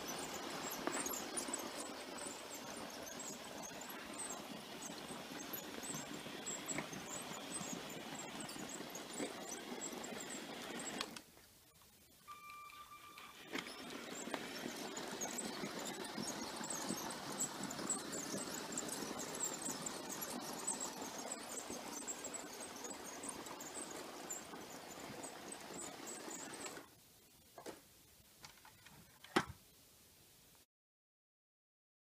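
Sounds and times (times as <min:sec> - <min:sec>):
toy train motor whirring rattle: 0:00.0 - 0:11.3, 0:12.4 - 0:26.9
faint high squeal: 0:12.3 - 0:17.1.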